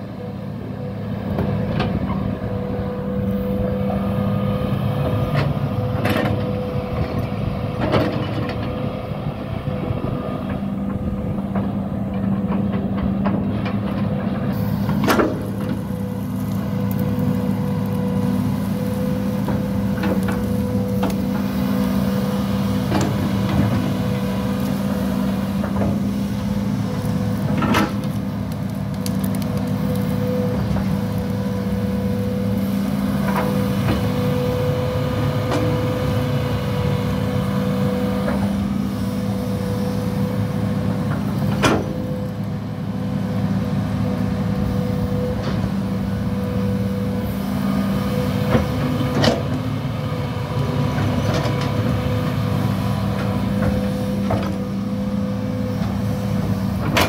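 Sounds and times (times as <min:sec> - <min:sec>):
steady whine: 0:00.0 - 0:27.7
excavator diesel engine running: 0:00.0 - 0:57.0.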